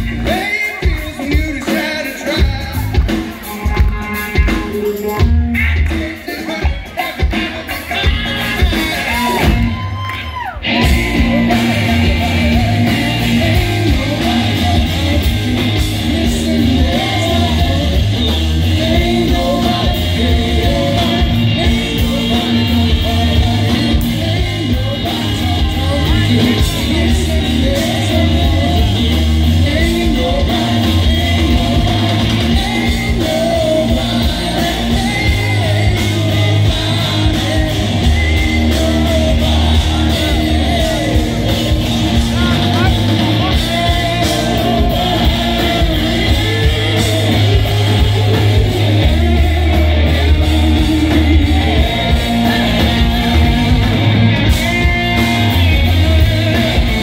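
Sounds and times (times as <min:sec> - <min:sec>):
rock band playing: 0:00.0 - 0:57.0
person singing: 0:10.7 - 0:57.0.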